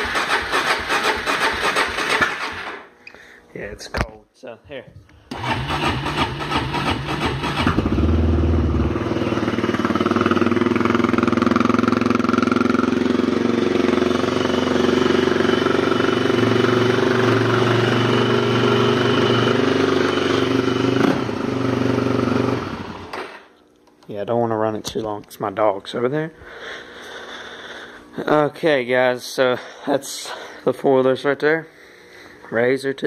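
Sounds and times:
atv engine cranking and idling: 0.0 - 2.9, 5.3 - 23.4.

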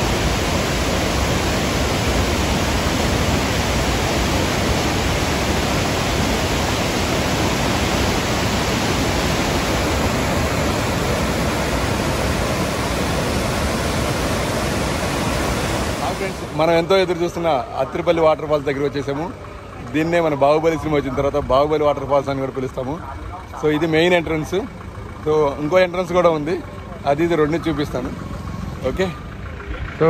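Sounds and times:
waterfall rushing: 0.0 - 16.9.

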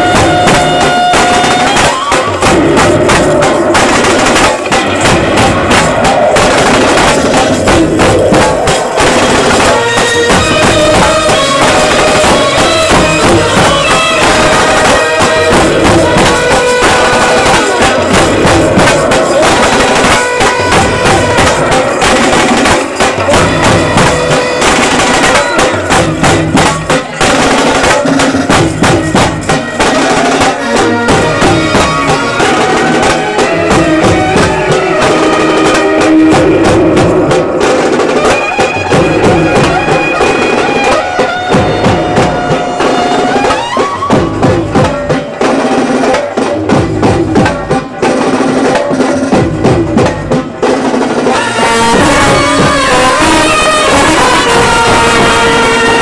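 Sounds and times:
trumpets playing melody: 0.0 - 2.5, 9.0 - 26.0, 29.6 - 36.4, 38.2 - 44.1, 51.3 - 56.0
drums beating fast rhythm: 0.0 - 56.0.

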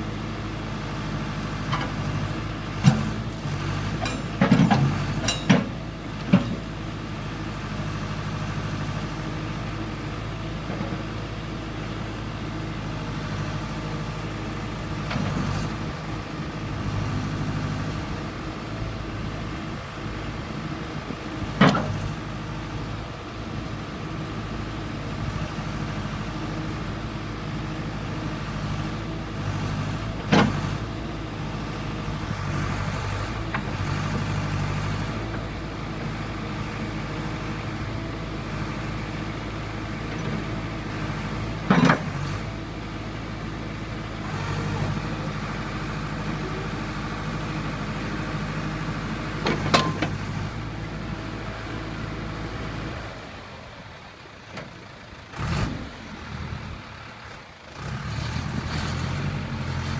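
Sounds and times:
diesel engine running: 0.0 - 59.9
sharp metal clanks: 5.2 - 5.7.

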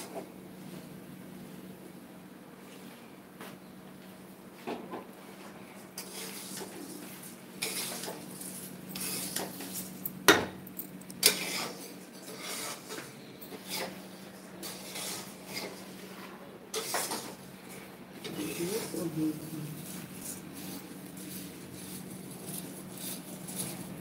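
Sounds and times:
metal spatula scraping rice in pan: 6.0 - 9.9, 11.2 - 16.0, 16.7 - 17.4.

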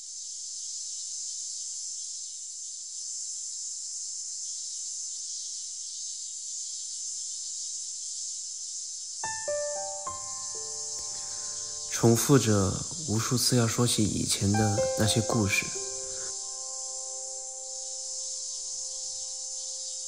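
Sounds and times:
cicadas droning: 0.0 - 20.0
sustained musical notes: 9.3 - 20.0.

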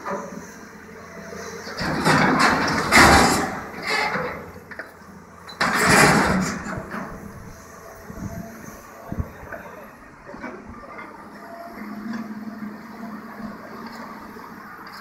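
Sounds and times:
excavator engine running: 0.0 - 15.0
hydraulic shear crushing metal: 1.8 - 4.7, 5.6 - 6.9.

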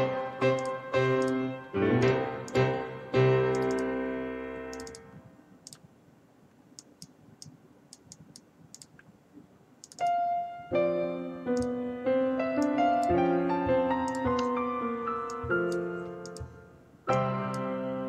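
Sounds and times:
piano music: 0.0 - 5.0, 10.0 - 18.0
computer mouse clicks: 3.5 - 3.9, 4.7 - 5.9, 6.8 - 9.1, 9.8 - 10.1, 11.6 - 11.8, 14.1 - 14.6, 15.3 - 16.5.

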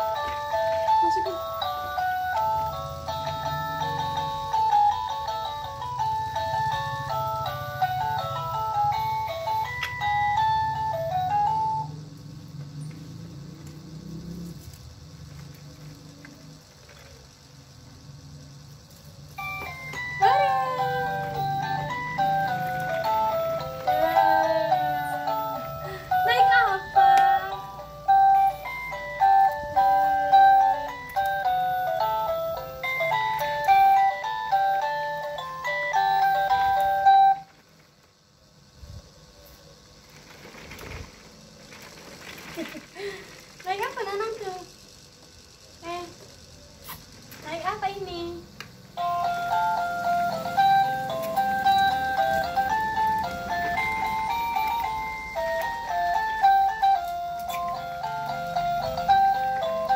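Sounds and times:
electronic toy beeping tune: 0.0 - 12.0, 19.3 - 37.5, 49.0 - 59.9.

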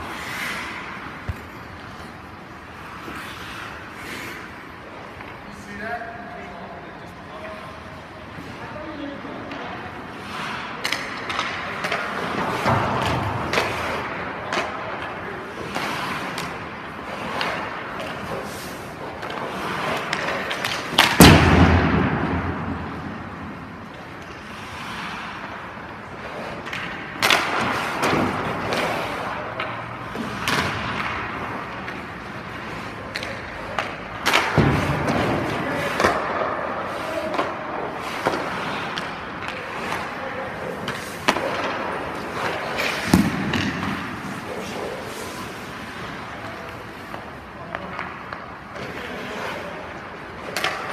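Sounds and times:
skate blades scraping ice: 0.0 - 5.8, 7.0 - 50.9
puck knocks and thuds: 19.2 - 22.9, 33.1 - 36.6, 40.8 - 44.3.

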